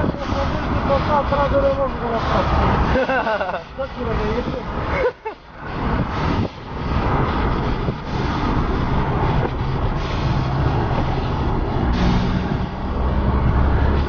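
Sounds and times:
wind and road noise: 0.0s - 14.0s.

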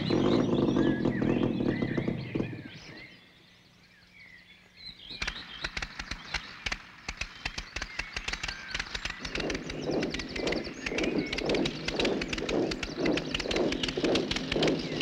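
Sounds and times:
model airplane engine: 0.0s - 3.1s, 5.3s - 15.0s
birds chirping: 0.0s - 15.0s
irregular sharp clicks: 5.2s - 15.0s.

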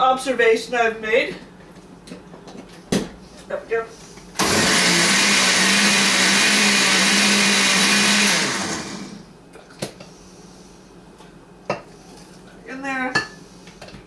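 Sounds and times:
motor winding down: 4.4s - 9.2s
blender running: 4.4s - 9.3s.

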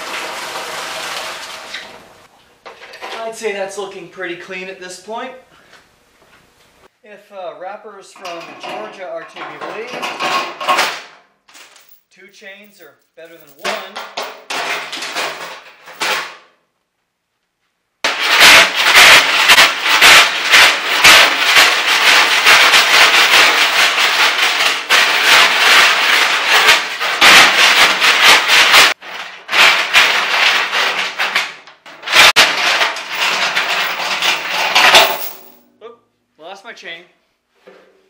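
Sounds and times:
chains rattling inside metal tank: 8.2s - 11.0s, 12.8s - 16.2s, 18.1s - 35.6s
chain clinking: 11.5s - 14.5s, 33.1s - 35.6s.

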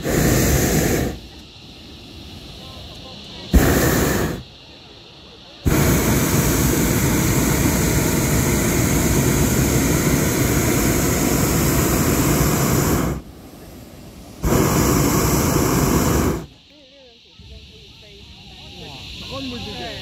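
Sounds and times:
propane burner roaring: 0.0s - 2.5s, 3.5s - 4.7s, 5.6s - 16.5s.

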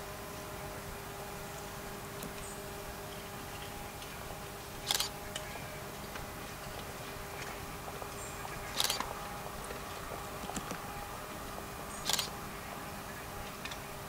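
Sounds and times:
faint hum: 0.0s - 14.0s
camera shutters firing: 4.9s - 5.1s, 8.8s - 9.1s, 12.0s - 12.3s.

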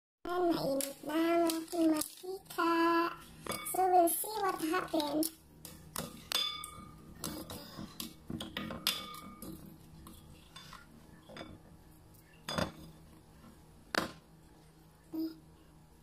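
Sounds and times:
spoon clinking against glass bowl: 6.3s - 7.0s.

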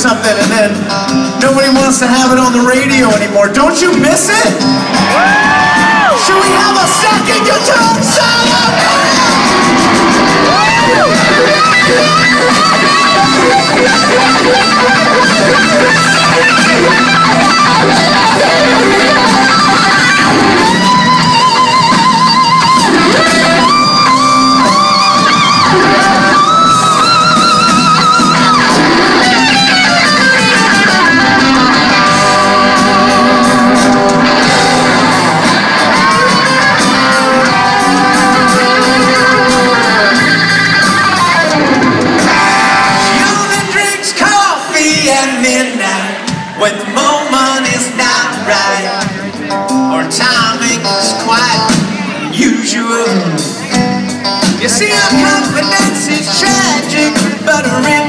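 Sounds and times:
rock band playing: 0.0s - 58.0s
electric guitar solo: 4.2s - 44.2s, 53.0s - 58.0s.

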